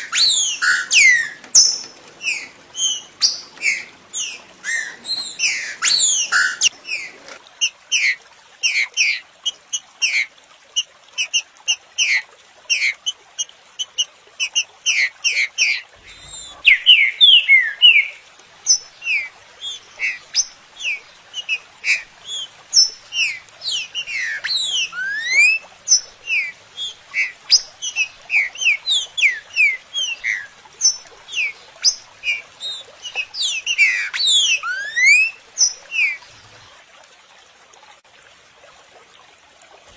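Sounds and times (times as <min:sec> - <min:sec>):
bird song whistled notes: 0:00.0 - 0:06.7, 0:16.0 - 0:36.2.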